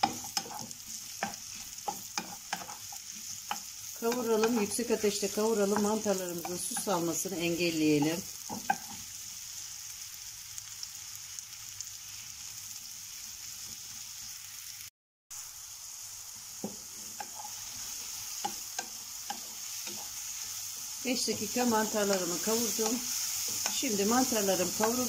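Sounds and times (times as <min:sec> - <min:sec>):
wooden spoon knocking on pan: 0:00.0 - 0:02.8, 0:05.6 - 0:07.1, 0:08.0 - 0:09.0
mushrooms sizzling in a frying pan: 0:00.0 - 0:25.0.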